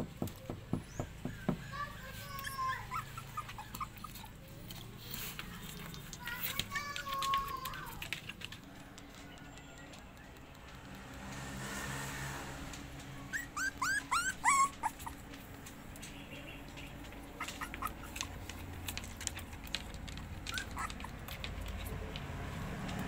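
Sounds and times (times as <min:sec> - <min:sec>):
puppies whining: 0:01.7 - 0:08.3, 0:13.2 - 0:21.9
light clicking and scratching: 0:01.8 - 0:11.9, 0:12.6 - 0:23.0.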